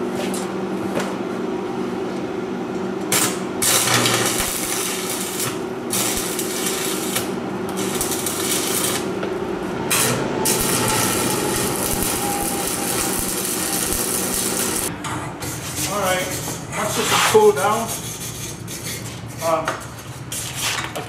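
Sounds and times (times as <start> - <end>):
steady low hum: 0.5 - 15.0
welder arc crackling and hissing: 3.1 - 9.2, 9.9 - 14.9.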